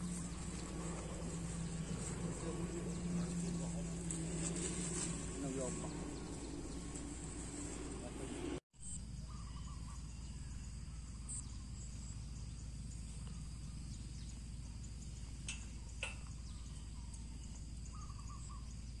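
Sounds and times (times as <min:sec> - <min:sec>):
low rumble and hiss: 0:00.0 - 0:08.6
faint bird chirps: 0:08.8 - 0:19.0.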